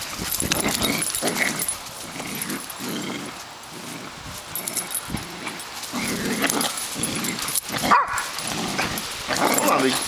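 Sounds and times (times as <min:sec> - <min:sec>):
dogs play-fighting: 0:00.0 - 0:10.0.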